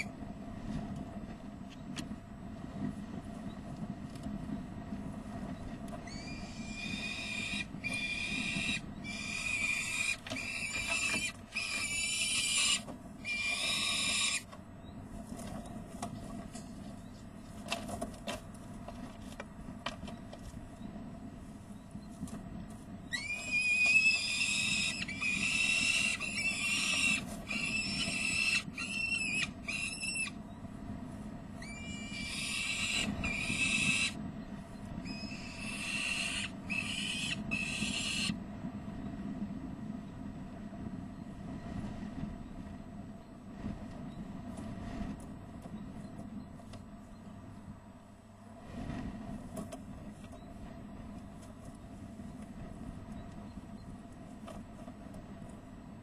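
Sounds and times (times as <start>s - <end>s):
low rumble of wind: 0.0s - 56.0s
falcon alarm calls: 6.0s - 14.6s, 23.1s - 30.4s, 31.6s - 34.2s, 35.0s - 38.4s.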